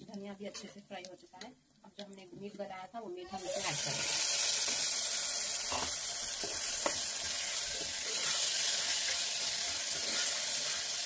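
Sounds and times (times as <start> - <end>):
meat sizzling in hot oil: 3.2 - 11.0
metal spoon stirring: 5.6 - 11.0.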